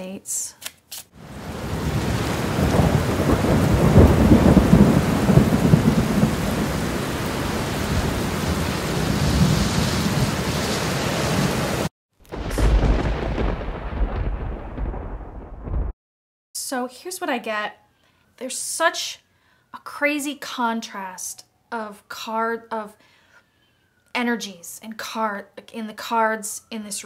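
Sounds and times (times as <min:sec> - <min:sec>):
heavy rain: 0:01.2 - 0:15.9
thunder rumbling: 0:01.2 - 0:16.0.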